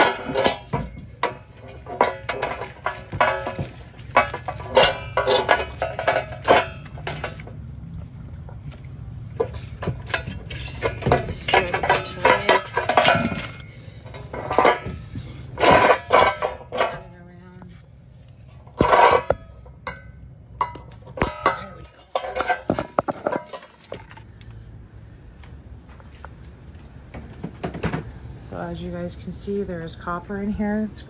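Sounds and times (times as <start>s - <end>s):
metal lamp clanking: 0.0s - 7.5s, 9.4s - 17.2s, 18.6s - 24.2s.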